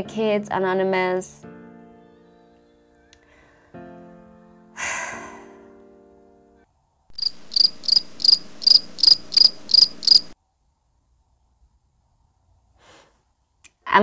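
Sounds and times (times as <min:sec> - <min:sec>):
cricket chirping sound effect: 0:07.1 - 0:10.4.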